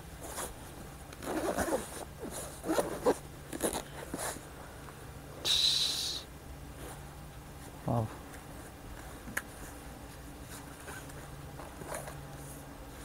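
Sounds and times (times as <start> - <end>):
zipper being pulled open: 1.2 - 4.4.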